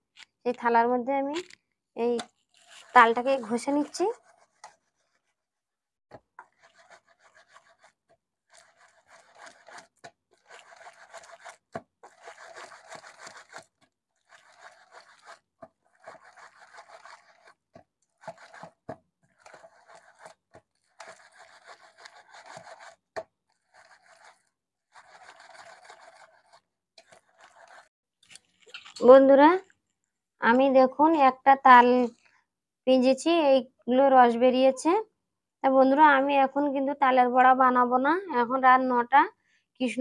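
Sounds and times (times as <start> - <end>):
fruit scraping on metal plate: 2.2 - 5.4, 6.4 - 27.9.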